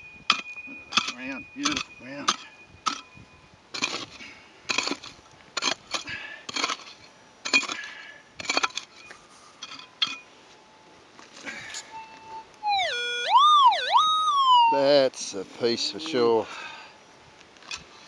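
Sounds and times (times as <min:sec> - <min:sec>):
metal detector signal tone: 0:00.0 - 0:03.4, 0:11.8 - 0:15.0
pick striking stony soil: 0:03.7 - 0:10.2.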